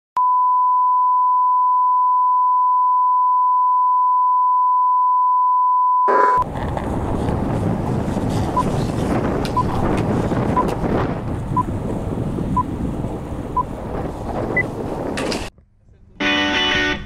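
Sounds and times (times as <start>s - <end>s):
steady test tone beep: 0.2s - 6.4s
wind buffeting microphone: 6.4s - 15.5s.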